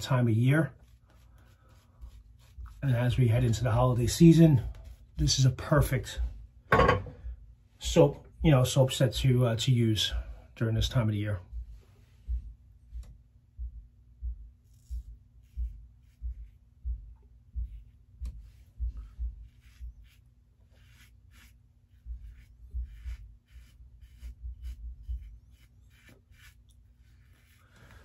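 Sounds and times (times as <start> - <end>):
razor scraping through stubble: 14.7 - 16.5, 19.0 - 27.8.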